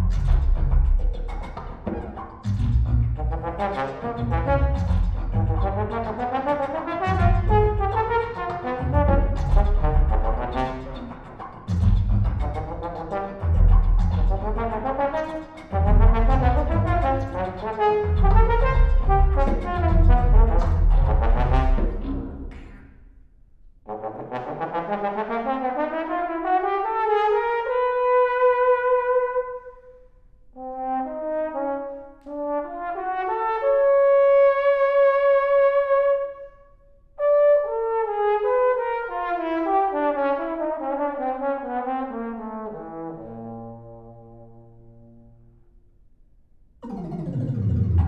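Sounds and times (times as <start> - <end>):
trombone playing: 3.1 - 11.4, 12.4 - 22.4, 23.9 - 29.7
electronic tape music: 46.8 - 48.0.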